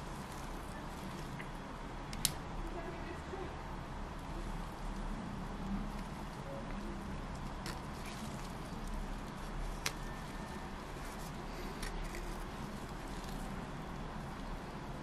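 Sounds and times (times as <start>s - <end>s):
steady low hum: 0.0s - 15.0s
silicone squishing: 4.2s - 15.0s.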